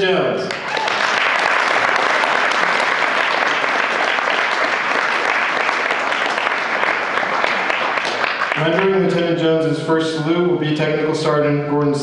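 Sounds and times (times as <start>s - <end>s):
audience applauding: 0.5s - 9.4s.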